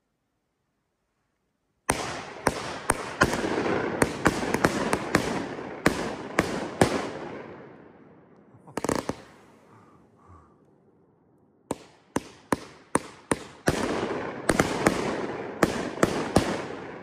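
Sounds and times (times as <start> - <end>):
fireworks shots: 1.9 - 9.6, 11.7 - 17.0
fireworks bangs: 8.7 - 9.6.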